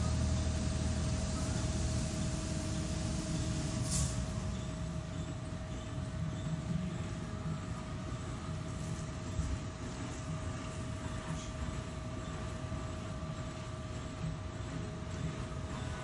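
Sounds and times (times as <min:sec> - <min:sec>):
constant whine: 0:00.0 - 0:16.0
low mechanical rumble: 0:00.0 - 0:16.0
short hiss: 0:03.8 - 0:04.3.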